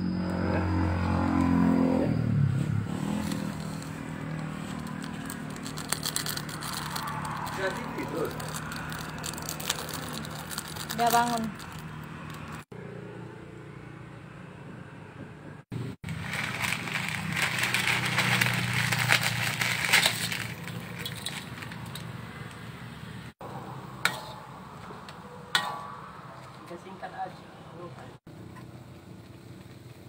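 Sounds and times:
metal ladle clinking on wok: 24.1 - 25.0, 25.6 - 26.0.

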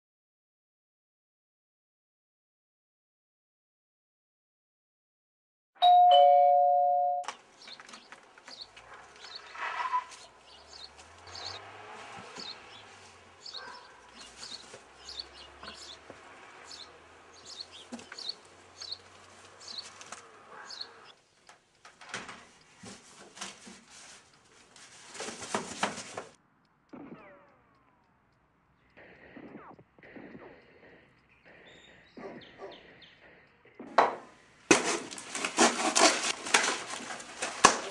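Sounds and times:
two-tone doorbell chime: 5.8 - 7.3.

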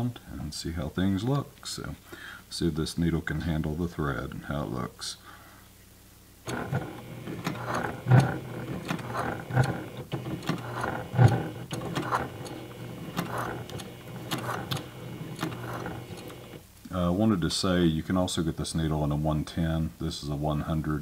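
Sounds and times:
sewing machine running: 6.5 - 16.6.

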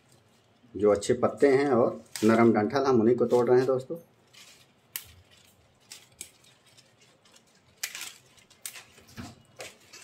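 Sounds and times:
leaves rustling: 0.0 - 10.0
plant stems snapping: 4.9 - 10.0.

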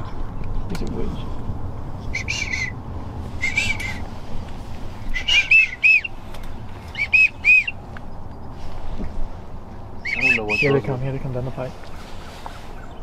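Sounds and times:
steady background noise: 0.0 - 13.0
duck squealing calls: 2.1 - 2.8, 3.4 - 4.1, 5.1 - 6.2, 6.9 - 7.8, 10.0 - 10.9.

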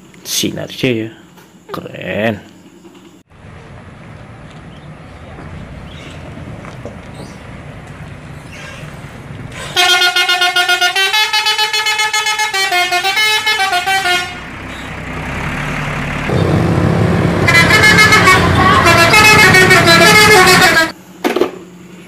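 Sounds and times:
bus engine approaching: 3.3 - 21.0
musical bus horn tune: 9.5 - 15.6, 16.3 - 21.0.

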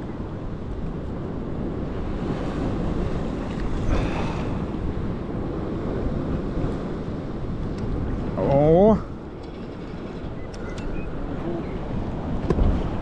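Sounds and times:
surf washing onto shore: 0.0 - 9.5
wind buffeting microphone: 0.0 - 13.0.

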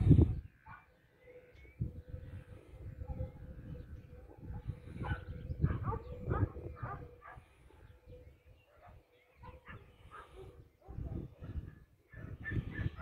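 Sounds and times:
dog barking: 0.6 - 0.9, 4.3 - 7.4, 8.7 - 13.0.

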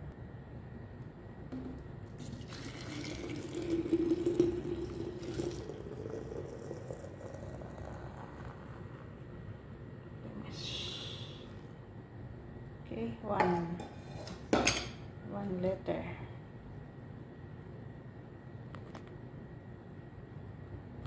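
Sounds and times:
hot coffee pouring into a flask: 2.1 - 9.4.

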